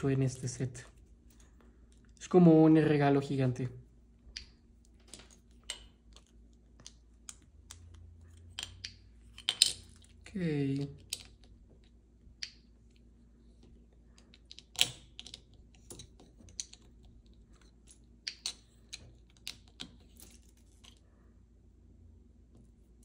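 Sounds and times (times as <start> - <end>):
plastic toy bricks clicking: 4.3 - 10.1, 10.8 - 11.6, 14.2 - 20.0.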